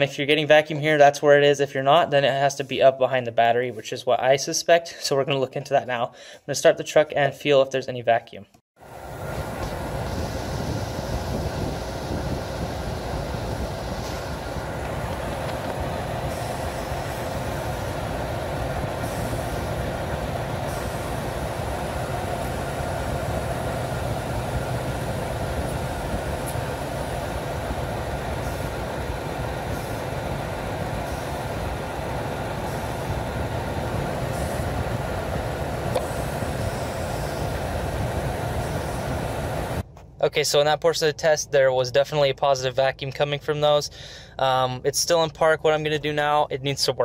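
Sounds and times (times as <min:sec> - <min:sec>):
vacuum hose suction hiss: 0:08.8 - 0:39.8
engine idling: 0:09.5 - 0:39.8.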